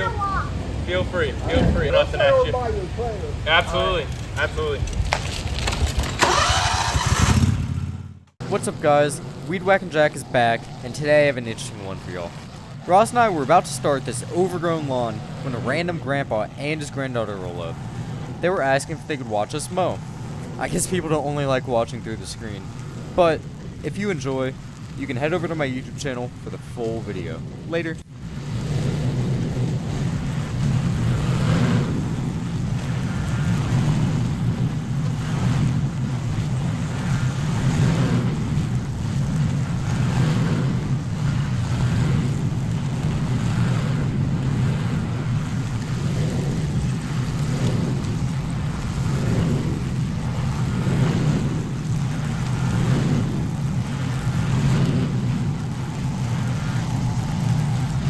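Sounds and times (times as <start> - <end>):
lawn mower engine droning: 3.8 - 25.5.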